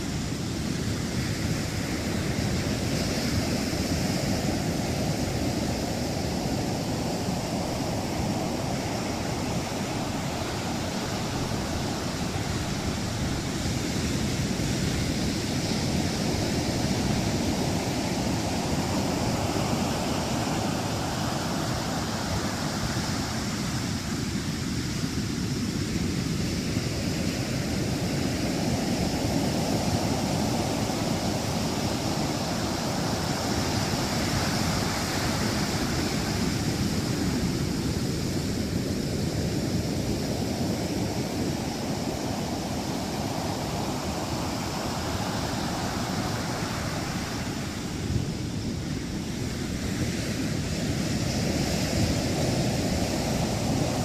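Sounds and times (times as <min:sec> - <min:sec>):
heavy surf breaking: 0:00.0 - 0:24.4, 0:26.7 - 0:54.0.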